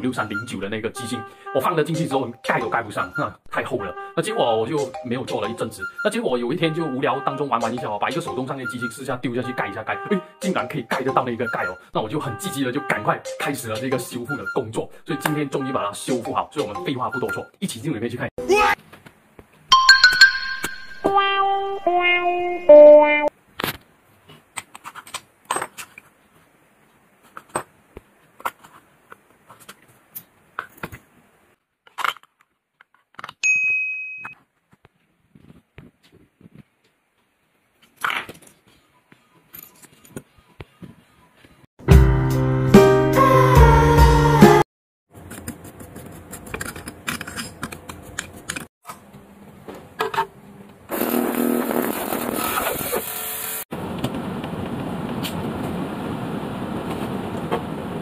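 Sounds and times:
bright metallic ding: 0:19.7 - 0:23.0, 0:33.4 - 0:34.4
ultrasonic cleaner humming: 0:50.9 - 0:53.6.

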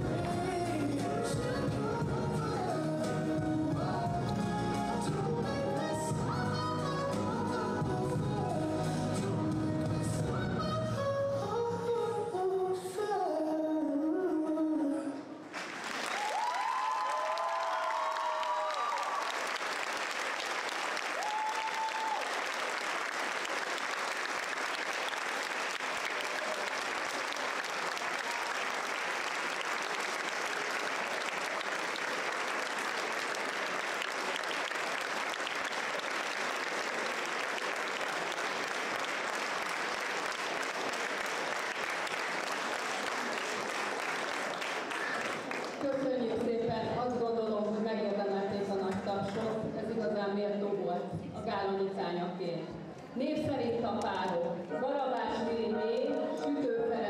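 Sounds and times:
audience applauding: 0:15.5 - 0:46.0.

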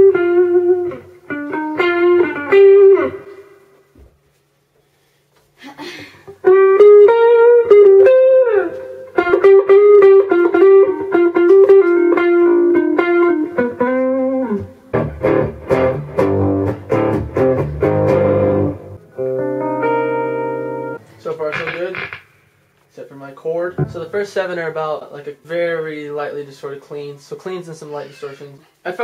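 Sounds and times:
electric guitar strummed chords: 0:00.0 - 0:03.5, 0:06.4 - 0:22.4
electric guitar melody with bends: 0:00.0 - 0:03.8, 0:06.4 - 0:22.4.

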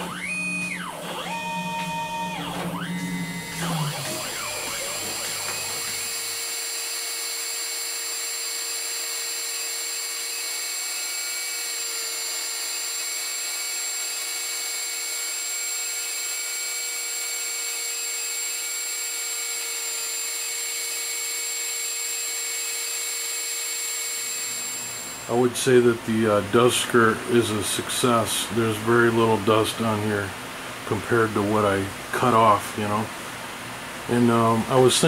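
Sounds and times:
router spindle whining: 0:00.0 - 0:25.8.

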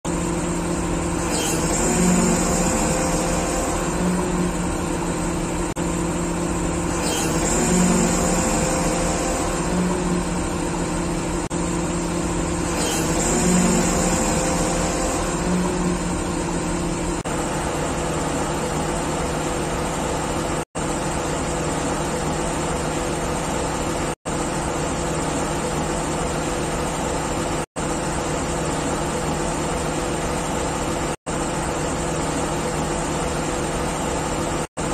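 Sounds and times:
diesel engine running: 0:00.1 - 0:24.2.

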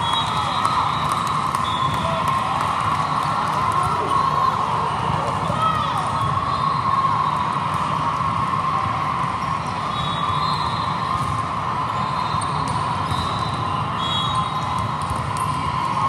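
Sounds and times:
volleyballs hit and bouncing: 0:10.9 - 0:16.0.

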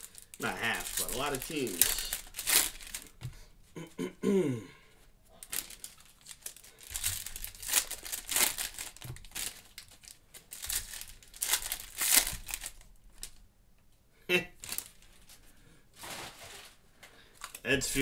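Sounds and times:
foil wrappers crinkling: 0:00.0 - 0:03.2, 0:05.4 - 0:13.4, 0:14.6 - 0:15.4, 0:16.0 - 0:17.6.

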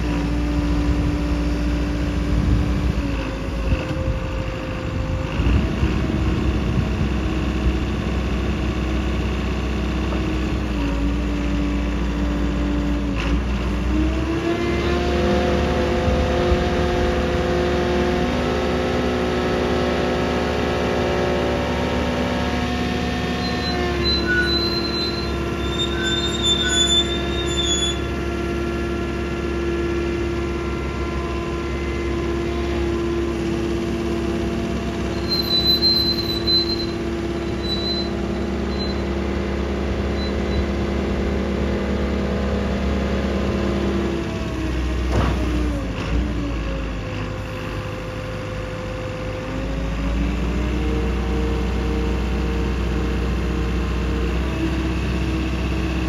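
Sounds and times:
diesel engine running: 0:00.0 - 0:56.0
short high-pitched squeals: 0:23.2 - 0:28.2, 0:35.0 - 0:39.2, 0:40.0 - 0:40.8.

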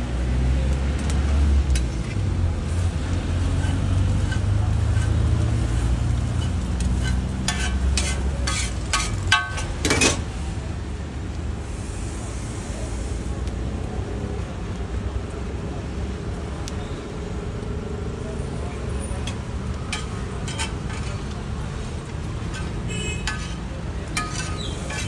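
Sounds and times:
metal spatulas scraping griddle: 0:01.7 - 0:10.3, 0:19.2 - 0:25.0.

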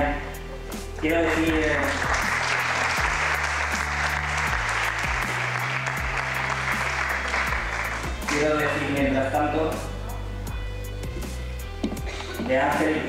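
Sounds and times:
background music with steady beat: 0:00.0 - 0:13.0
audience applauding: 0:01.3 - 0:08.7.

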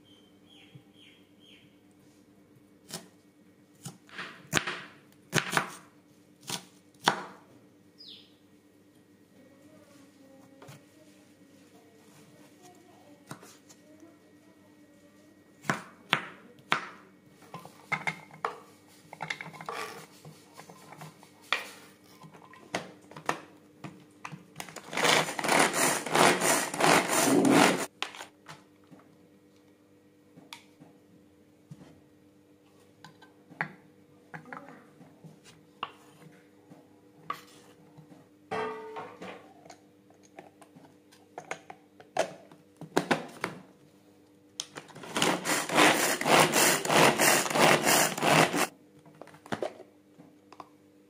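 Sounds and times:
manual food chopper whirring: 0:24.6 - 0:27.9, 0:44.9 - 0:48.7.

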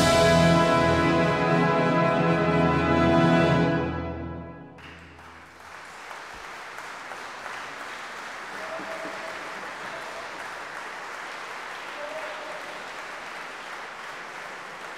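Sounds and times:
audience applauding: 0:04.8 - 0:14.9.

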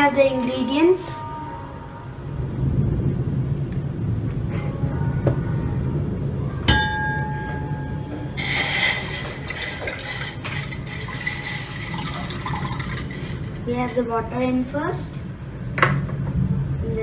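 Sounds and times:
steel vessel clinking: 0:06.7 - 0:14.1
water poured into saucepan: 0:08.4 - 0:13.6.

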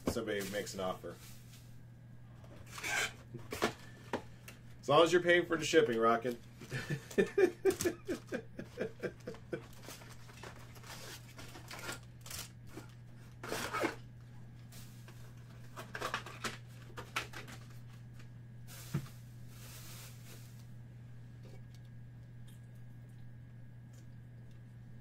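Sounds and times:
steady low hum: 0:00.0 - 0:25.0
foil card packs rustling: 0:09.0 - 0:14.1, 0:14.8 - 0:18.9.

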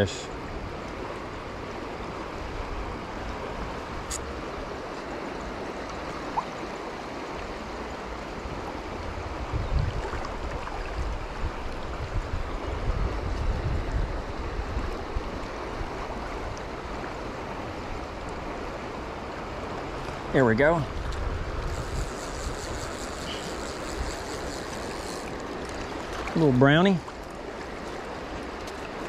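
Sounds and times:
river water rushing: 0:00.0 - 0:29.0
wind buffeting microphone: 0:08.5 - 0:15.4, 0:20.6 - 0:26.4.

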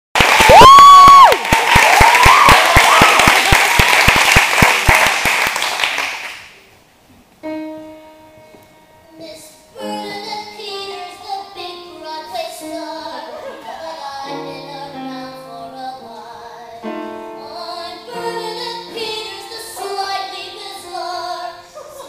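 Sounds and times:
audience clapping and cheering: 0:00.1 - 0:06.6.

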